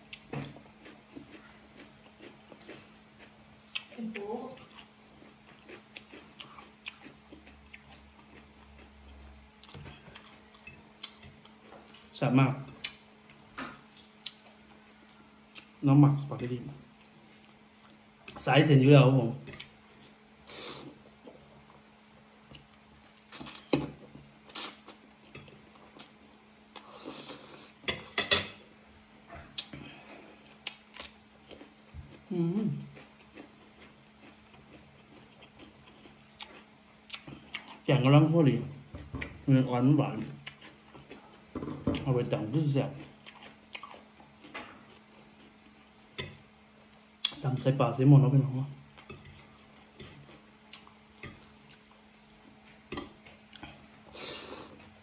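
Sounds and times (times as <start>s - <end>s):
low steady hum: 0.0s - 55.0s
fork clinking and scraping on plate: 27.8s - 28.6s.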